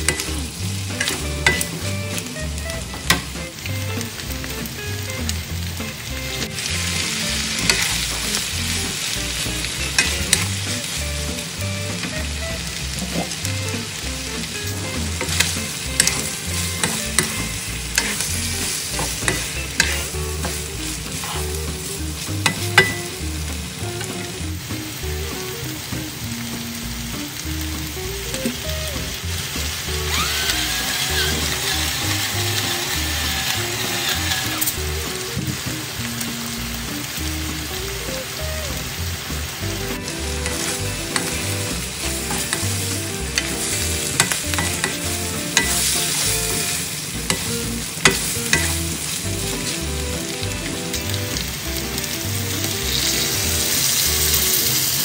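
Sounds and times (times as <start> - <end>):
meat sizzling in a wok: 0.0 - 55.0
wooden spatula scraping a pan: 14.7 - 21.7, 30.4 - 34.8, 40.4 - 49.9.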